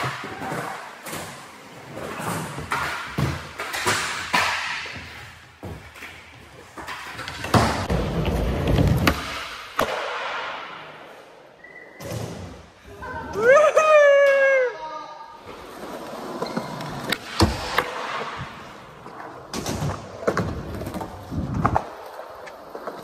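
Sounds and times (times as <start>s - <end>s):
skateboards rolling on concrete: 0.0s - 9.4s, 15.4s - 23.0s
skateboards clacking on ground: 0.0s - 10.0s, 16.4s - 23.0s.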